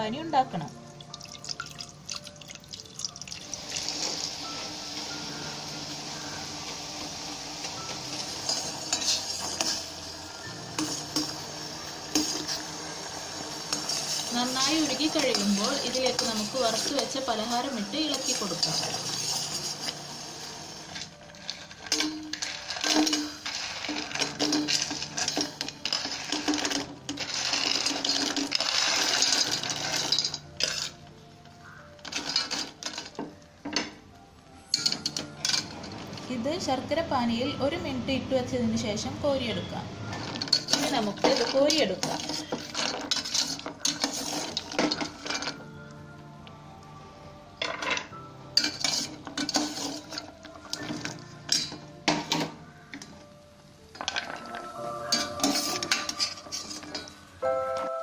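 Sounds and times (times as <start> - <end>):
spoon scraping steel pot: 8.2 - 9.9, 13.6 - 20.0, 21.9 - 31.0, 40.2 - 45.6, 48.6 - 52.5, 55.0 - 57.2.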